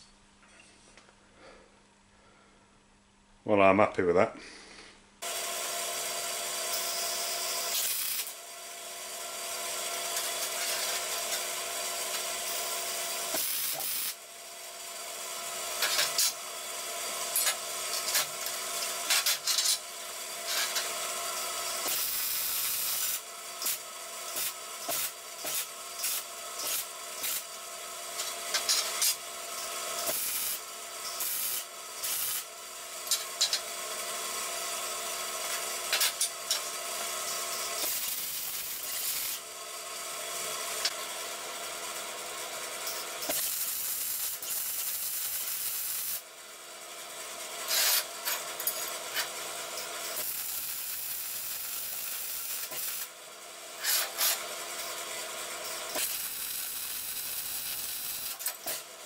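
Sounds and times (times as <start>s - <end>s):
welding arc crackling: 5.2s - 8.5s, 9.5s - 14.3s, 15.5s - 16.4s, 17.2s - 33.7s, 34.4s - 41.0s, 42.9s - 46.3s, 50.1s - 53.2s, 55.6s - 58.8s.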